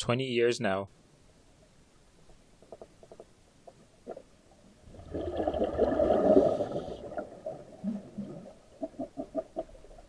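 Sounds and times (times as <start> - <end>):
gurgling rush of bubbles: 4.8 - 10.0.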